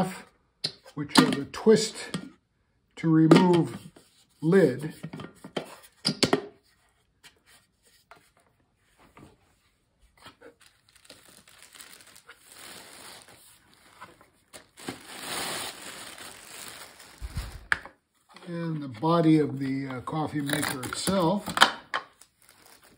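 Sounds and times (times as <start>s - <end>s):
plastic bag crinkling: 10.4s - 17.9s.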